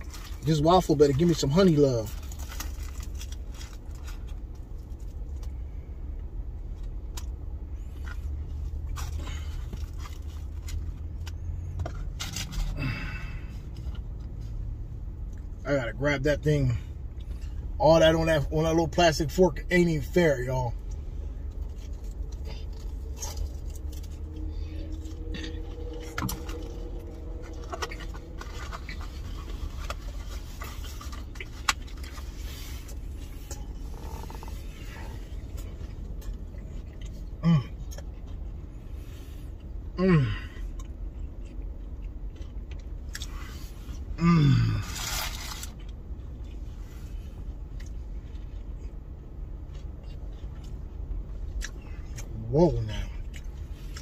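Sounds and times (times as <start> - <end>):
steady low hum: 0.0 - 54.0
chewing: 20.8 - 39.8, 40.4 - 44.1, 47.7 - 52.3, 53.0 - 54.0.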